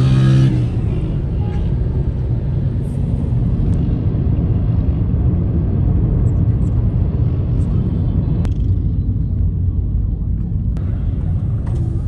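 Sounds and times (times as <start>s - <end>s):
traffic rumble: 0.0s - 12.0s
wind rushing over microphone: 0.0s - 12.0s.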